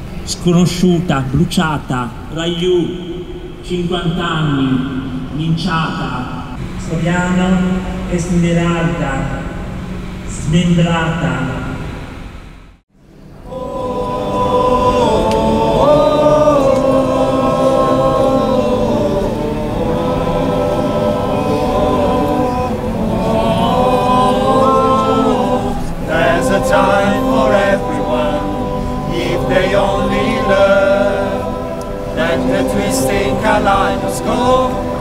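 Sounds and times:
choir singing: 13.2s - 35.0s.

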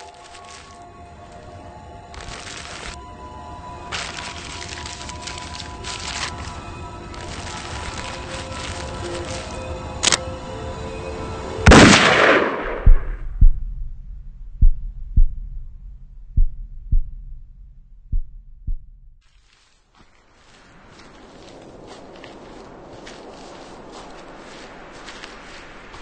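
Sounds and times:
music: 0.0s - 12.4s
loud gunshot: 11.7s - 13.3s
slow heartbeat: 12.6s - 19.3s.

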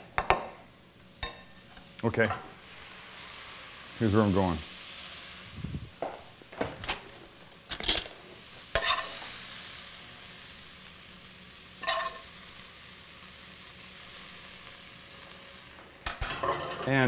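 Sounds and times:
faint pan sizzle: 0.0s - 17.0s
metal spoon clinking and scraping: 7.7s - 8.1s, 8.8s - 9.2s, 11.8s - 12.2s, 16.1s - 16.9s.

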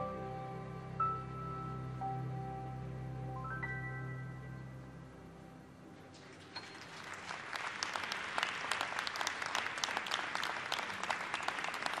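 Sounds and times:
piano notes: 0.0s - 6.1s
audience applause: 6.2s - 12.0s.

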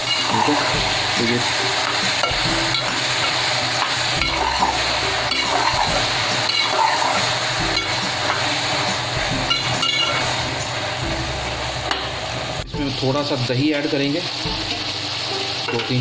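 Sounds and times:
metal spoon scraping a pot: 0.0s - 3.4s, 4.2s - 8.4s
chickpeas sizzling in ghee: 0.0s - 16.0s.

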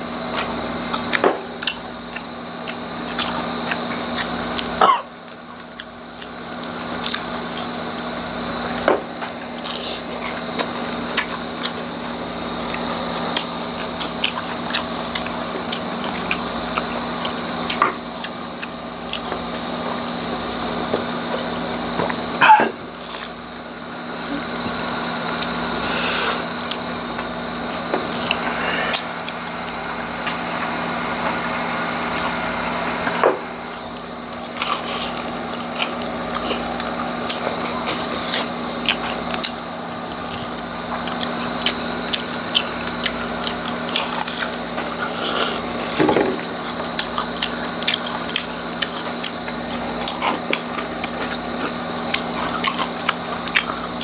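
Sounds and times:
crunchy chewing: 0.0s - 54.0s
steady background hum: 0.0s - 54.0s.

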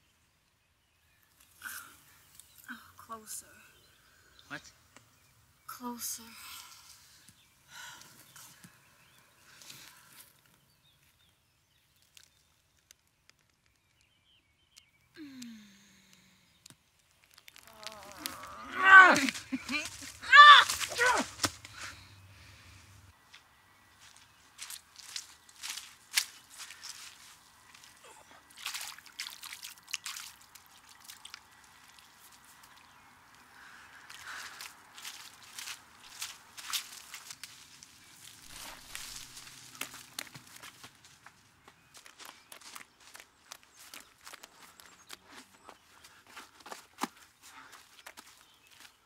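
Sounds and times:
footstep on wet leaves: 17.1s - 22.1s, 23.3s - 49.0s
person short falling vocal sound: 17.6s - 21.6s
hands splashing water in puddle: 24.6s - 32.9s, 34.0s - 37.7s
water dripping and trickling: 24.6s - 40.7s.

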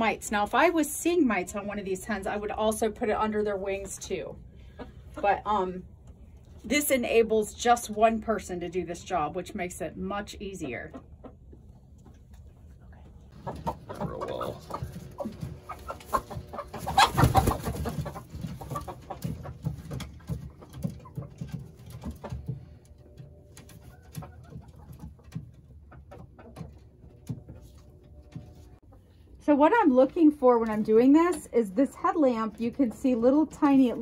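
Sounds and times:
chickens clucking and cooing: 3.2s - 6.5s, 10.2s - 29.4s.

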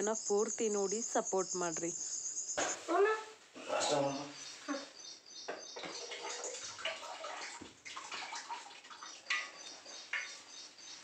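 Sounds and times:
churning stick sloshing liquid: 5.9s - 10.4s.

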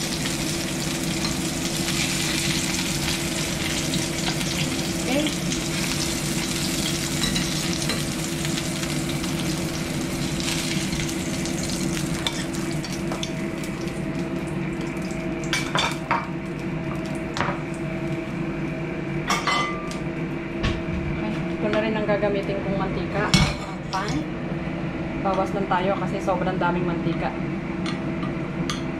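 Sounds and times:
oil sizzling in frying pan: 0.0s - 18.4s
steady low hum: 0.0s - 28.9s
utensils and dishes clinking: 6.7s - 8.2s, 12.2s - 13.4s, 19.3s - 20.0s.

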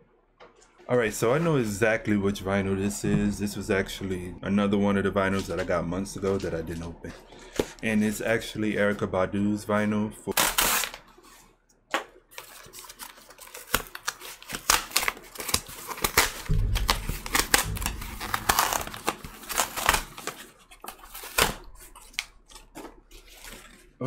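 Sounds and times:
cardboard tearing and crinkling: 10.3s - 11.3s, 12.3s - 24.0s
low handling rumble: 16.5s - 20.0s.

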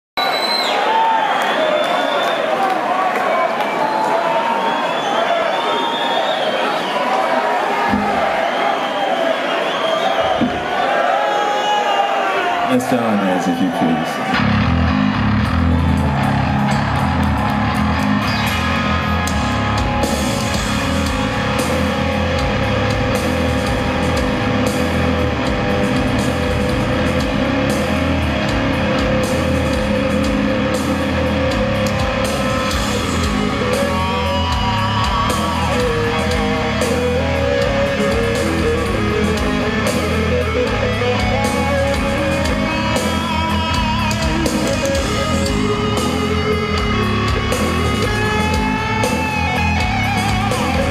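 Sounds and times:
distorted electric guitars: 14.2s - 50.9s
bass guitar: 14.3s - 50.9s
drum kit beat: 14.9s - 50.9s.

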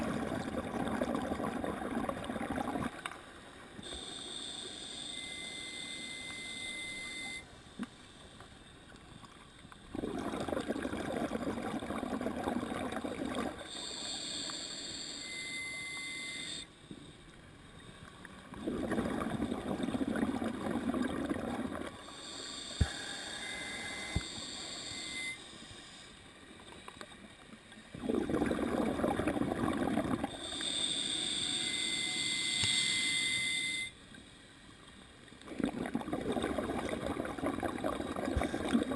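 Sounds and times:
gurgling exhaust bubbles: 0.0s - 3.0s, 9.9s - 13.7s, 18.5s - 21.9s, 27.9s - 30.3s, 35.5s - 38.9s
regulator hissing inhale: 13.7s - 15.4s, 22.0s - 23.4s, 30.3s - 32.2s.

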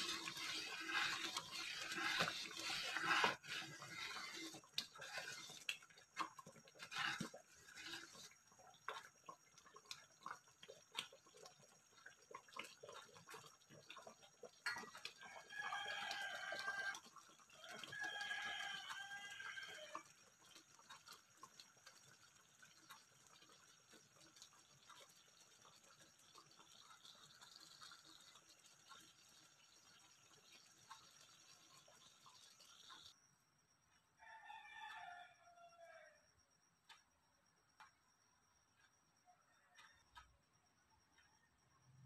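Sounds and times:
spoon scraping pan: 0.0s - 9.1s
porridge simmering and popping: 0.0s - 42.0s
rooster crowing: 15.2s - 17.0s, 17.6s - 20.0s, 34.2s - 36.3s.

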